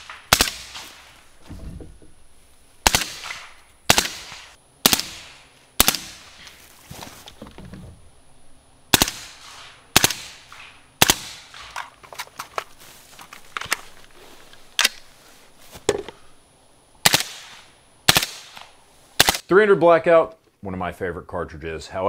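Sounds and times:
suppressed rifle shots: 0.0s - 1.1s, 2.8s - 6.5s, 8.9s - 11.9s, 17.0s - 19.4s
magazine change clicks and rattles: 11.6s - 12.7s, 14.8s - 15.1s.

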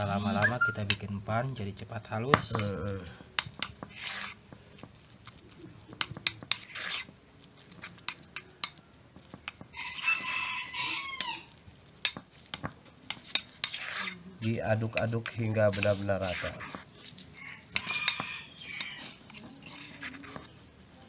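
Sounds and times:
spoon scraping ceramic bowl: 0.0s - 1.3s, 2.2s - 10.7s, 11.4s - 21.0s
rooster crowing: 9.7s - 11.6s, 17.3s - 19.9s.

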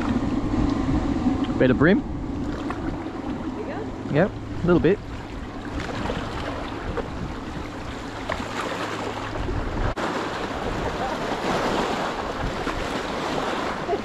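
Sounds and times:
waves lapping against riverbank: 0.0s - 14.0s
wind on microphone: 0.0s - 14.0s
fish splashing out of water: 5.1s - 13.9s.

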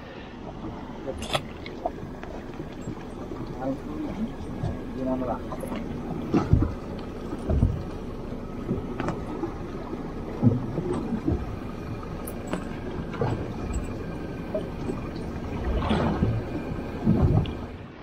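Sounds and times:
waves lapping against boat hull: 0.0s - 18.0s
low thumps: 6.2s - 8.0s.

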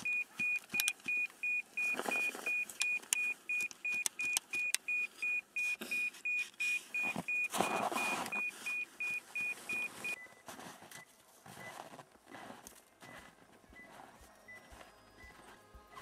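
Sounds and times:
rustling noise: 0.0s - 3.6s, 5.2s - 16.0s
rapid high beeps: 0.0s - 10.4s.

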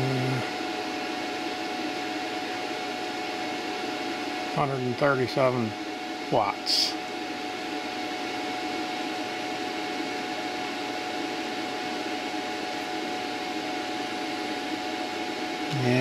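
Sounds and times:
faint high whine: 0.0s - 0.6s, 15.6s - 16.0s
machine hum and hiss: 0.0s - 16.0s.

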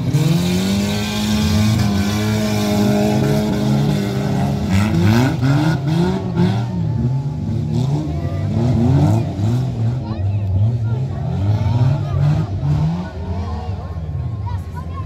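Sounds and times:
race car engines revving: 0.0s - 15.0s.

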